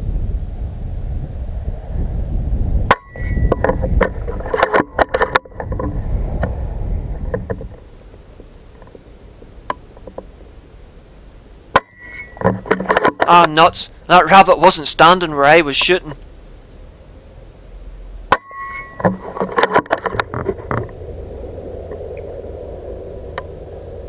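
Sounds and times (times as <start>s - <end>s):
wind rumbling on microphone: 0.0s - 10.9s, 18.8s - 24.0s.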